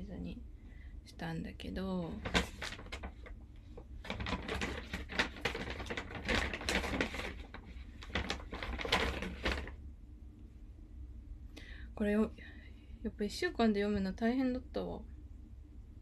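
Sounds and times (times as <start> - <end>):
rummaging with rustling and clicks: 2.2 - 9.8.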